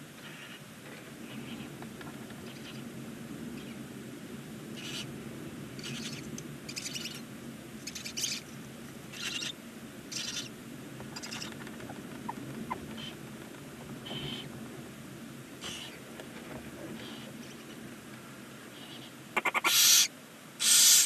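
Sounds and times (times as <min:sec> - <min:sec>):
owl hissing calls: 0:09.1 - 0:10.5, 0:15.6 - 0:16.0, 0:18.8 - 0:21.0.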